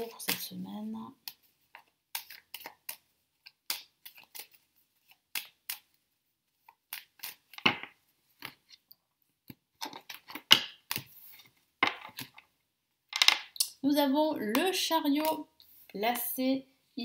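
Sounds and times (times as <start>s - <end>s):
cards shuffled by hand: 1.2s - 8.8s.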